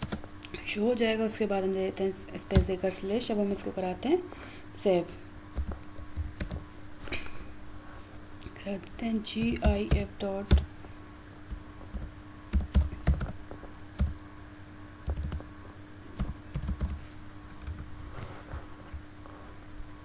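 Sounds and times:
keyboard typing: 0.0 - 0.2, 5.6 - 6.6, 9.4 - 10.7, 11.5 - 13.4, 14.0 - 14.2, 15.0 - 15.5, 16.2 - 17.0, 17.6 - 17.9
faint steady hum: 0.0 - 20.0.

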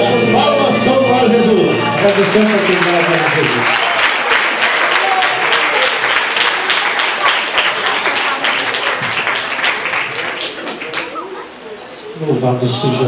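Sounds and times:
crowd applauding: 1.7 - 11.4.

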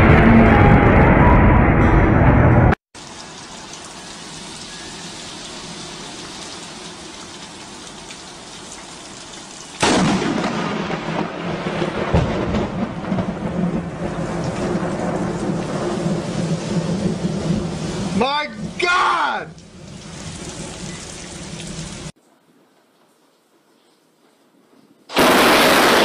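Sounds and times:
heavy rain pouring: 3.0 - 22.2, 25.1 - 26.0
thunder rumbling: 9.8 - 18.8, 25.1 - 26.0.

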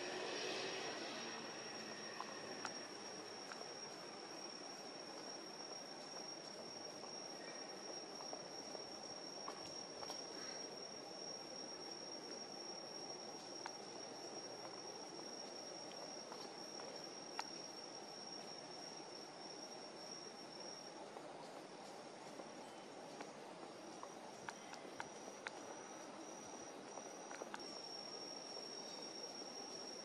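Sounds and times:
insect trilling: 0.0 - 20.9
low background noise: 0.0 - 30.0.

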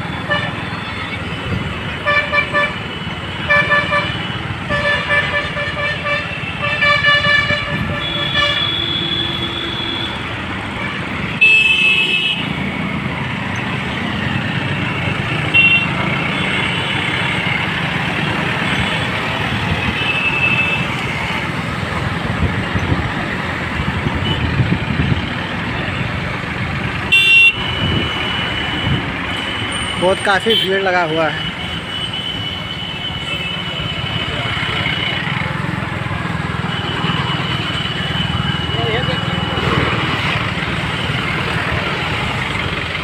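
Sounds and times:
engine rumble and road noise: 0.0 - 43.0
vehicle horns honking: 2.0 - 12.6, 15.4 - 17.3, 18.6 - 21.4, 24.2 - 24.6, 27.1 - 34.6.

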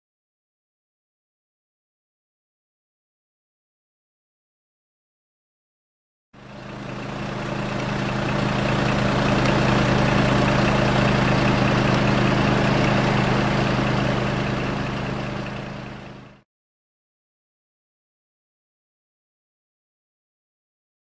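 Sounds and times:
diesel engine droning: 6.4 - 16.4.

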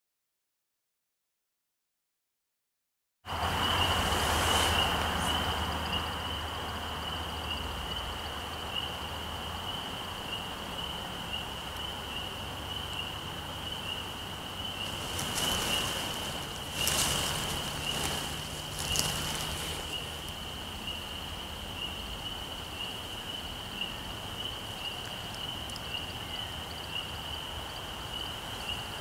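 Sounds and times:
bird wings trilling: 3.6 - 5.6, 14.7 - 20.6.

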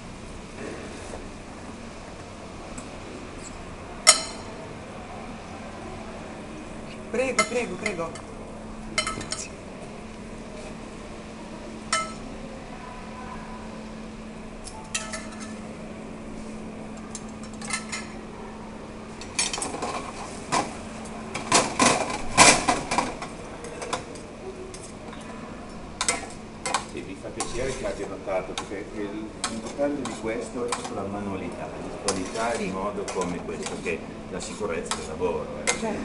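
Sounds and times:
utensils clinking against metal pan: 7.2 - 8.3, 9.0 - 9.5, 11.9 - 12.2, 14.8 - 15.6, 17.1 - 18.2, 26.0 - 28.8, 29.4 - 31.0, 32.0 - 36.0.

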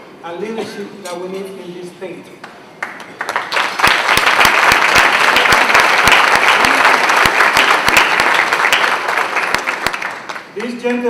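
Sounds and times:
audience clapping: 2.4 - 10.8.

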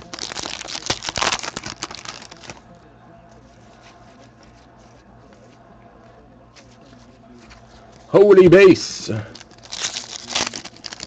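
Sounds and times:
wrapper crinkling and tearing: 0.0 - 2.6, 9.1 - 11.0.

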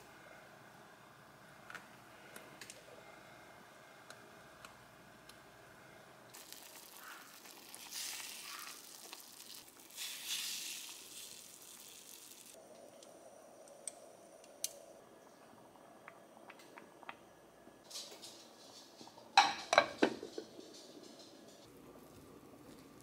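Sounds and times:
broth sizzling in a pot: 6.3 - 12.6.

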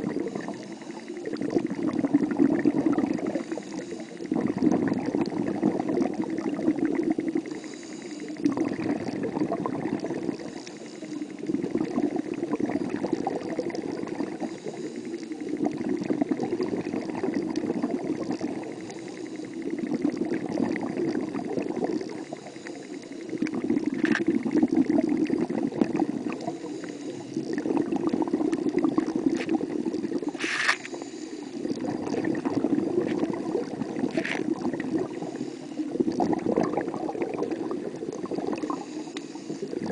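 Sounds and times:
underwater bubbling water: 0.0 - 39.9.

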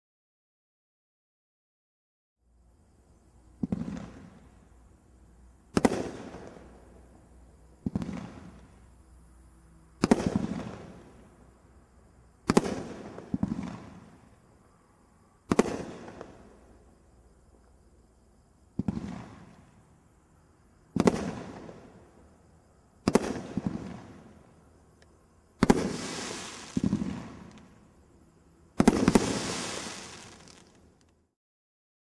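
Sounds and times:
firework bangs: 5.7 - 6.8, 10.0 - 11.0, 12.4 - 14.2, 15.5 - 16.4, 18.8 - 19.6, 20.9 - 22.0, 23.0 - 24.4, 25.6 - 27.8, 28.8 - 30.8.

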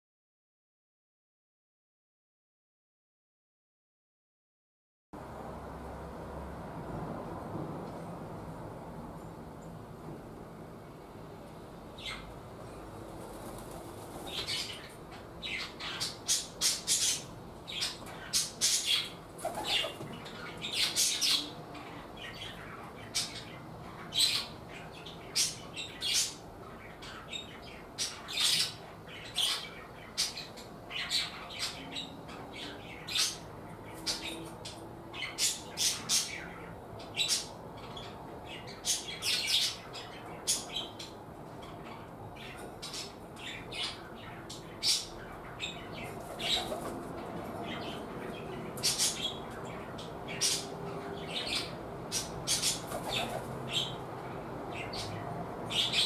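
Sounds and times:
small birds chirping: 12.0 - 12.3, 13.4 - 56.0.

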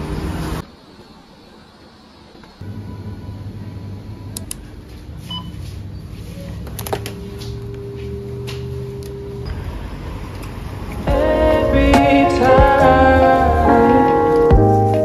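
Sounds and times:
conveyor belt motor hum: 0.0 - 14.2
steady tone: 7.6 - 15.0.

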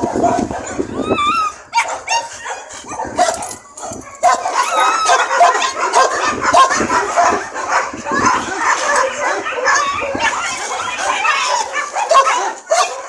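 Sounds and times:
dog barking and whining: 0.0 - 13.0.

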